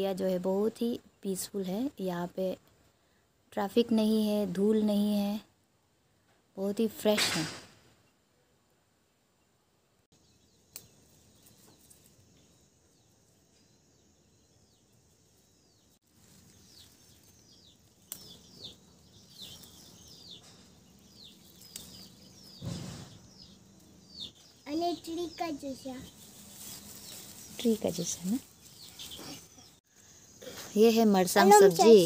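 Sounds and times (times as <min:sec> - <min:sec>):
birds downward-sliding chirps: 0:10.2 - 0:30.4.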